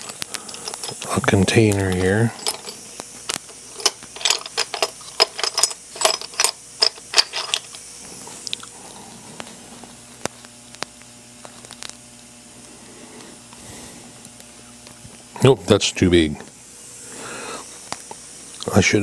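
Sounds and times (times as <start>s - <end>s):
metal tools clattering in container: 0.0s - 1.3s, 1.9s - 2.8s, 3.7s - 7.8s.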